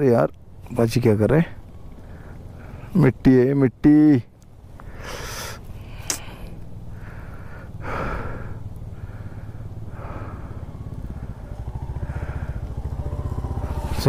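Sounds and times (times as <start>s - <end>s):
motorcycle engine idling: 0.5s - 3.0s, 4.4s - 14.0s
person breathing heavily: 4.8s - 12.8s.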